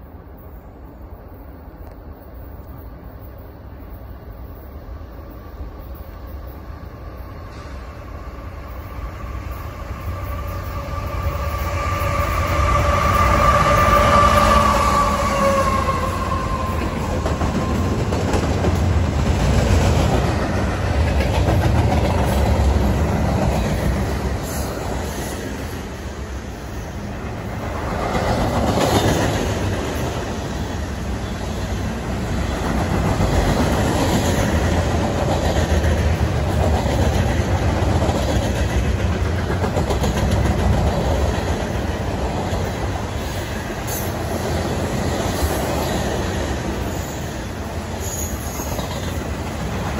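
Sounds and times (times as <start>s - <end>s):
freight train rumbling past: 0.0s - 49.9s.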